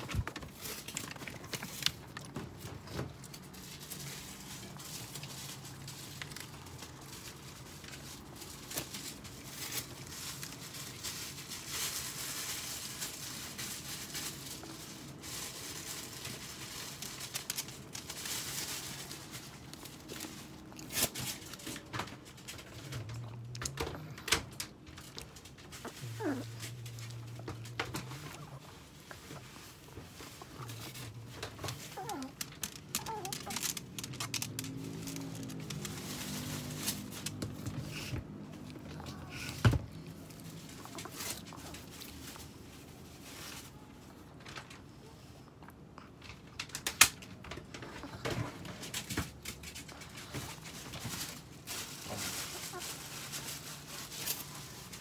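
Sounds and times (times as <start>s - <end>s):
dog paws scrabbling in crate: 0.0s - 45.3s, 46.1s - 55.0s
dog whining: 25.8s - 28.6s, 30.6s - 35.2s.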